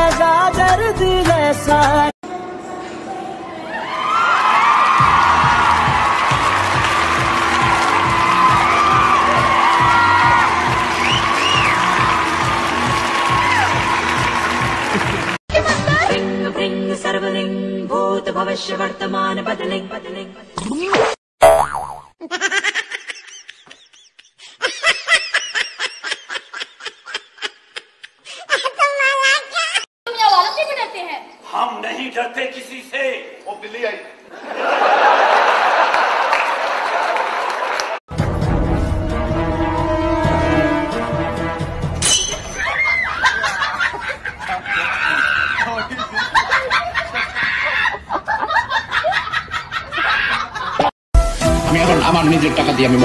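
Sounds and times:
people snickering and chuckling: 22.2 - 28.7, 42.7 - 50.9
person laughing: 22.2 - 28.9, 43.2 - 50.9.

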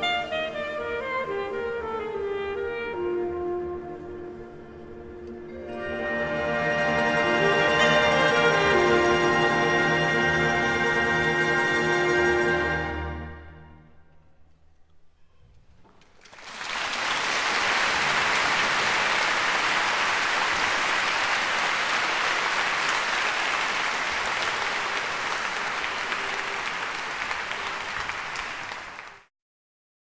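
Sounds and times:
audience applauding: 16.1 - 29.3.

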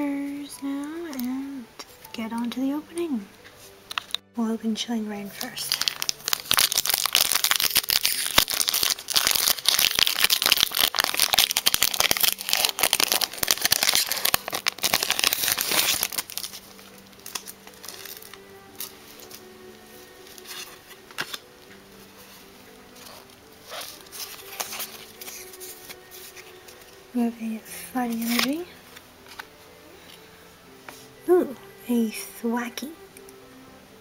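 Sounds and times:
faint background music: 0.0 - 34.0
foil wrapper crinkling and tearing: 5.4 - 27.0, 28.0 - 29.5.

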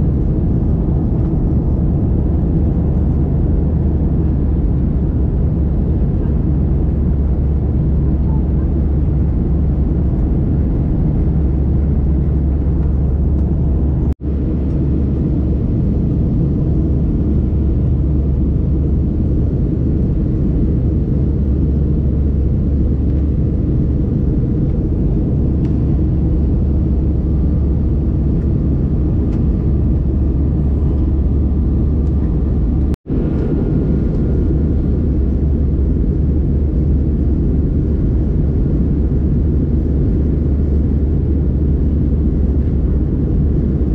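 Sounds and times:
jet engines and rushing air: 0.0 - 43.9.

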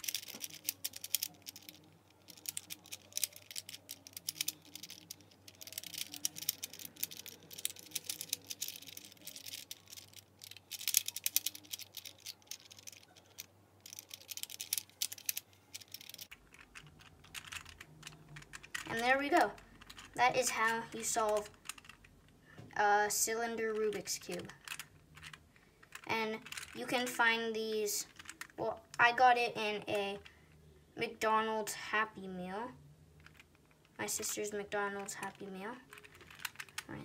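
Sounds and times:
plastic puzzle clicking: 0.0 - 20.2, 21.0 - 22.4, 23.8 - 27.2, 28.0 - 29.0, 33.2 - 34.0, 35.9 - 36.9.

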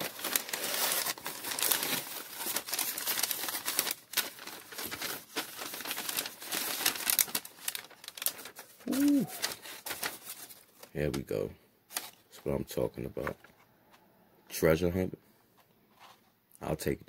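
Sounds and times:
newspaper crinkling and rustling: 0.0 - 11.2, 11.9 - 12.4.

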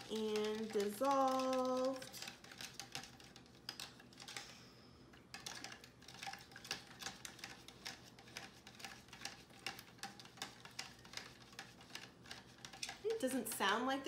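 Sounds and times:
spoon ticking against plastic cup: 0.0 - 4.4.

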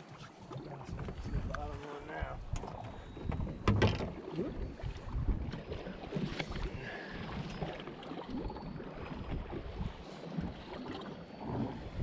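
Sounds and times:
water lapping against boat hull: 0.0 - 12.0
wind buffeting microphone: 0.7 - 7.7.

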